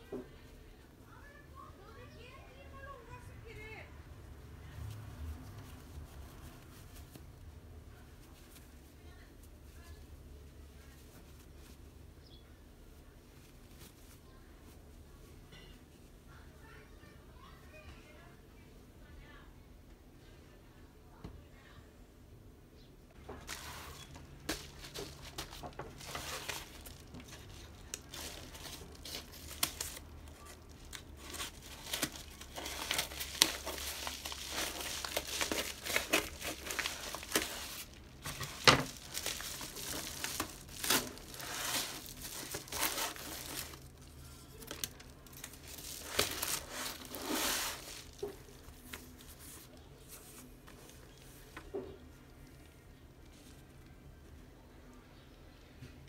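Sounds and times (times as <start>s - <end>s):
paper mailer crinkling: 23.3s - 49.6s.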